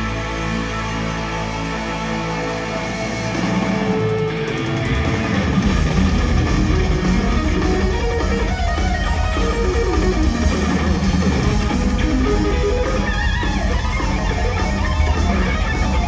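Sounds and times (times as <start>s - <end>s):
electric guitar sustained notes: 0.0s - 16.0s
heavy metal band playing: 0.0s - 16.0s.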